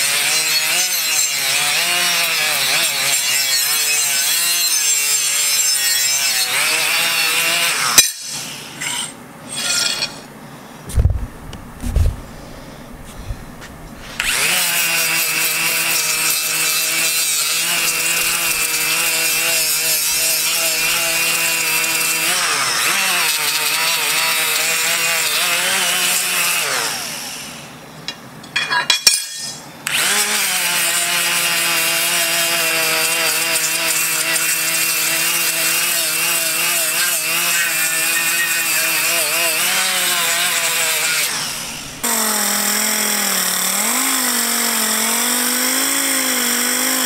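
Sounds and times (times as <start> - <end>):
drill sanding metal blade: 0.0 - 10.2, 14.0 - 27.1, 29.1 - 47.0
low thumps: 10.9 - 14.2.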